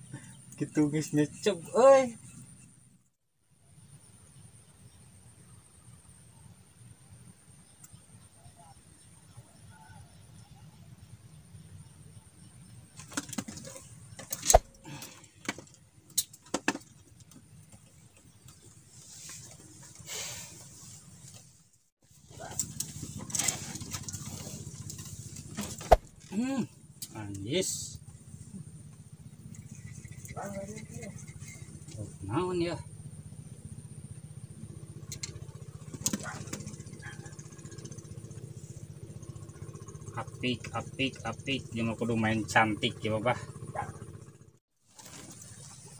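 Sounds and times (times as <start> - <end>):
small engine running: 22.1 - 45.9.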